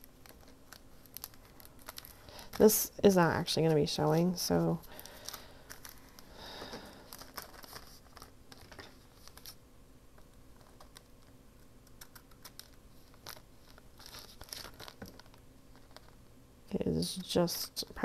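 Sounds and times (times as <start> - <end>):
paper rustling: 0.1 - 2.8, 4.9 - 9.6, 12.0 - 16.2.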